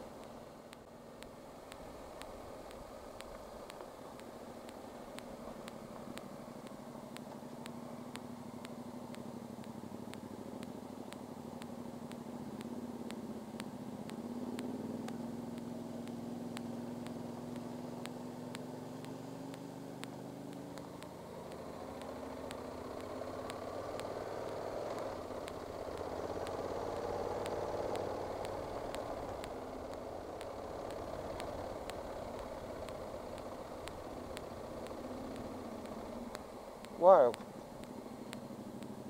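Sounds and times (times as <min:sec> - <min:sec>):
motorcycle engine running: 0:00.0 - 0:39.0.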